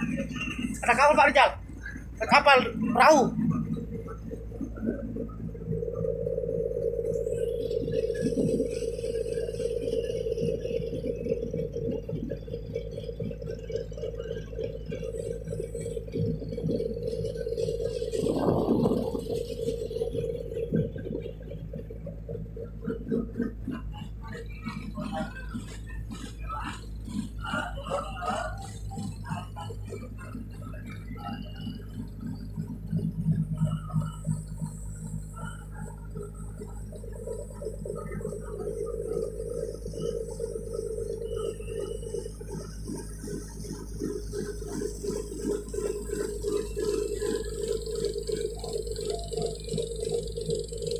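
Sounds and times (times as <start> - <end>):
ship engine droning: 0.0 - 50.9
wind rumble on microphone: 1.8 - 50.8.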